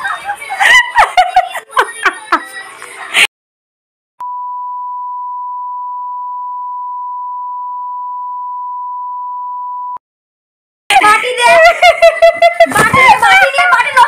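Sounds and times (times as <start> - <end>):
censor bleep tone: 4.2 - 10.0.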